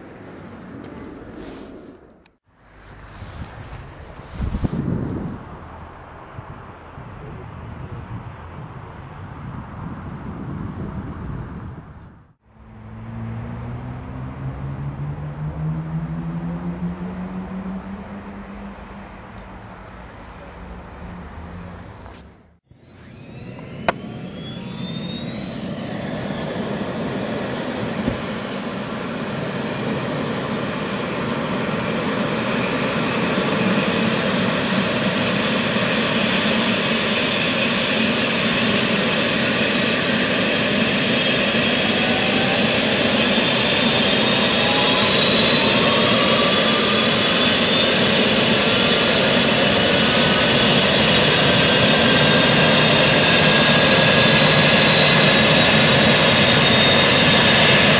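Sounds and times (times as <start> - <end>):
second rising whine: 12.5 - 57.9
helicopter turbine whine rising: 22.7 - 57.9.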